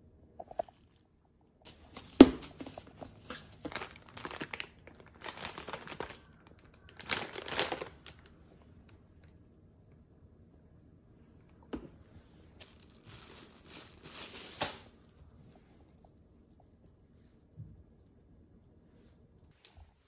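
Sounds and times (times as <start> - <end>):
plastic wrapping crinkling: 1.7 - 8.4, 12.6 - 16.6.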